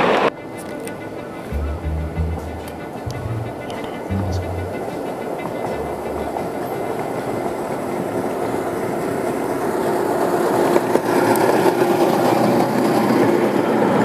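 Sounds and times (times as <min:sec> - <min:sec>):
steady hum: 0:01.5 - 0:06.9
wheels rumbling on rail: 0:02.2 - 0:14.0.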